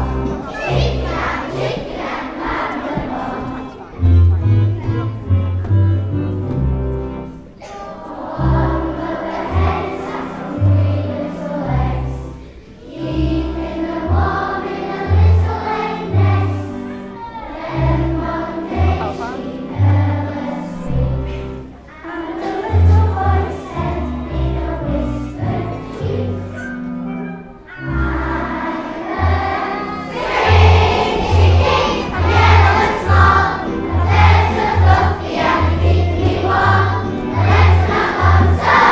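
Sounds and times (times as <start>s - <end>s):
children singing in unison: 0.0s - 3.9s, 7.6s - 26.6s, 27.8s - 38.9s
instrumental accompaniment with bass: 4.0s - 7.6s, 23.0s - 38.9s.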